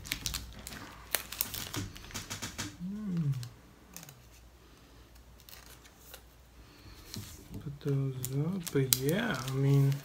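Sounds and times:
cards and plastic sleeves handled: 0.0s - 10.0s
person humming: 2.7s - 3.6s.

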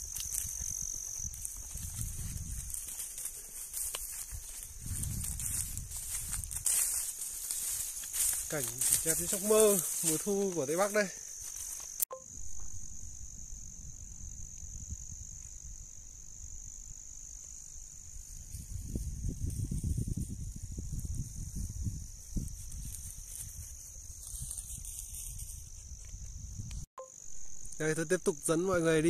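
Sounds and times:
wind rumble on microphone: 0.0s - 2.9s, 4.3s - 6.8s, 12.7s - 17.0s, 17.6s - 26.9s
insects chirring: 0.0s - 29.0s.

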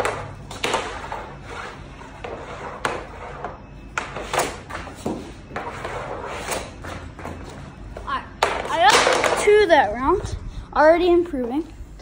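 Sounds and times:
hockey stick hitting pucks: 0.0s - 1.4s, 2.2s - 7.4s, 8.4s - 9.7s
pucks striking net frame and wall: 0.0s - 9.8s.

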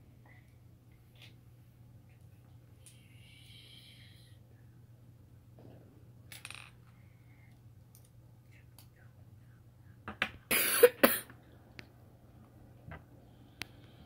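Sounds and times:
person coughing: 10.5s - 11.3s.

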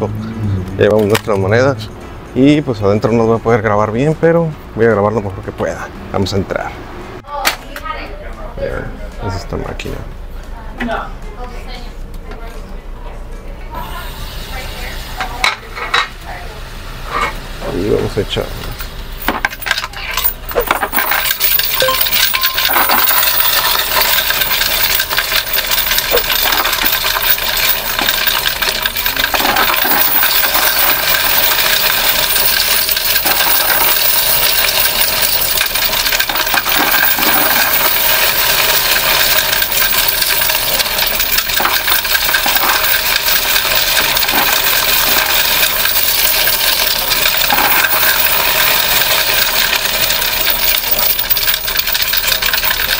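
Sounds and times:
coins clattering in counting machine: 19.2s - 52.9s.

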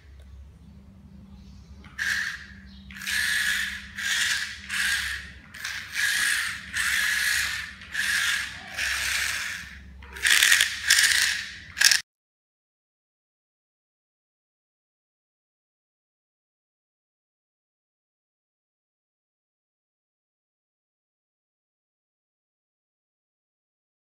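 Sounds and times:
electric gear motors whirring: 1.8s - 12.0s
rattly gearbox: 1.9s - 12.0s.

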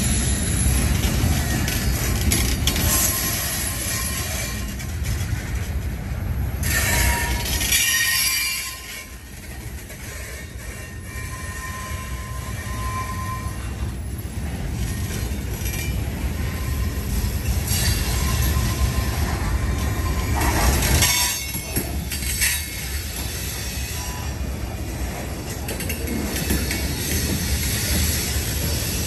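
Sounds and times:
train wheels rumbling on rail: 0.0s - 29.0s
high-pitched wheel squeals: 6.6s - 9.2s, 10.1s - 13.9s, 16.4s - 21.6s.

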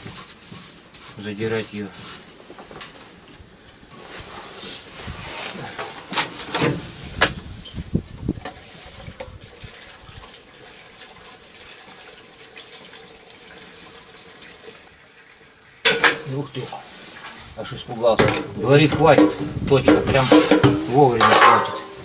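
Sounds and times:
handling knocks and clunks: 5.8s - 7.4s, 18.0s - 22.0s
liquid pouring and splashing: 8.2s - 22.0s.

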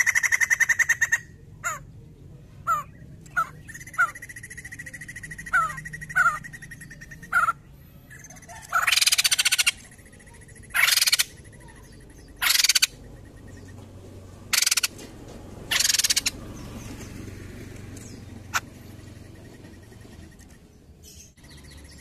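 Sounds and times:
bird rattling calls: 0.0s - 1.2s, 8.2s - 13.0s, 14.5s - 15.0s, 15.7s - 17.2s.

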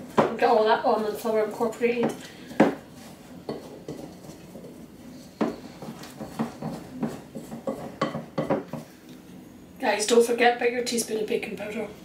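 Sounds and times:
wooden spoon scraping glass bowl: 2.1s - 8.8s.

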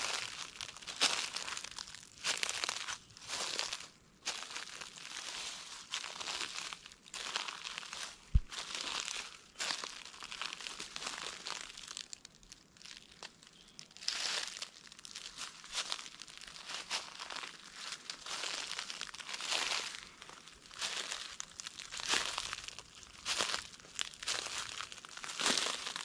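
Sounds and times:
footsteps crunching through dry leaves: 0.0s - 26.0s
dull low thump: 8.3s - 8.5s.

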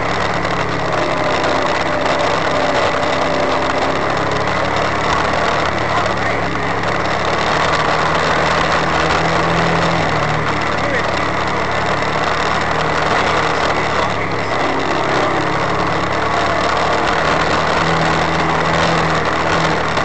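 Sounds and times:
off-road vehicle engine running: 0.0s - 20.0s
wind and tyre rushing noise: 0.0s - 20.0s.

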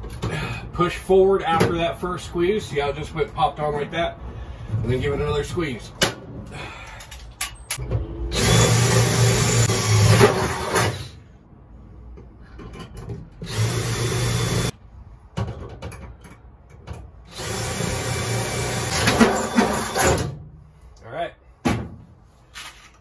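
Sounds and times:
cordless drill boring through metal: 8.3s - 11.1s, 13.4s - 14.7s, 17.3s - 20.2s.

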